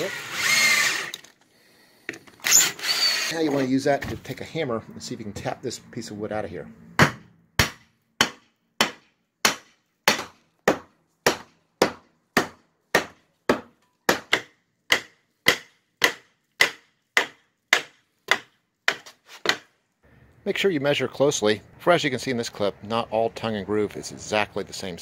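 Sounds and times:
hammer striking wood: 7.0s - 19.7s.

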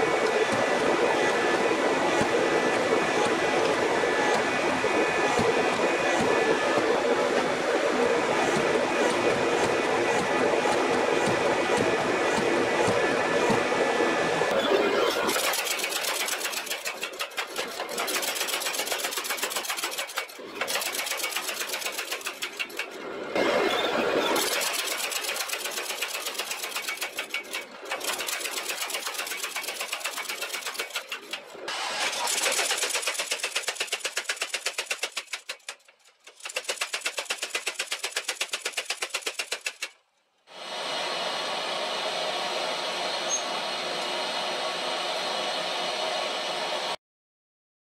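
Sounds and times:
power hammer striking metal: 0.0s - 7.7s, 8.4s - 13.8s.

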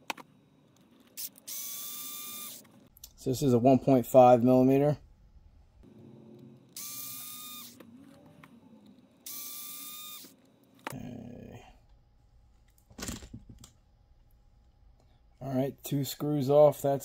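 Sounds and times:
electric screwdriver whining: 1.2s - 2.7s, 6.7s - 7.9s, 9.3s - 10.4s.

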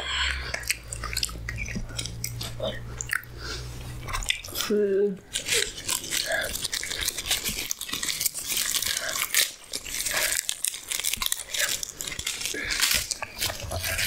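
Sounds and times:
chewing and crunching food: 0.0s - 14.0s
bread tearing and crinkling: 4.1s - 14.0s.

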